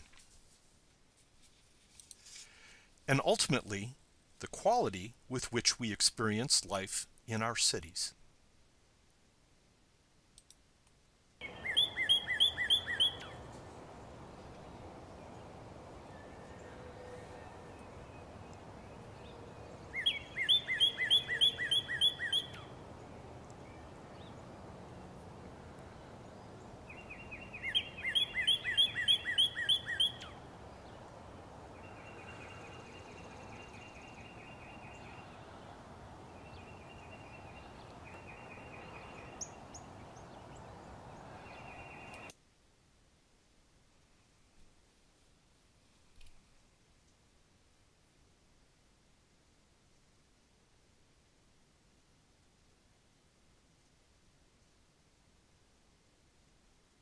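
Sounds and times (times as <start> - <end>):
steady background hiss: 0.0 - 57.0
bird singing slurred whistles: 11.4 - 13.4, 19.9 - 22.7, 26.9 - 30.4.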